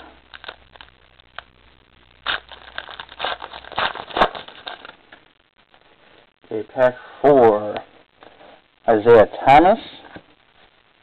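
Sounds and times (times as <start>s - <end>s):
cards being shuffled: 2.2s - 5.0s.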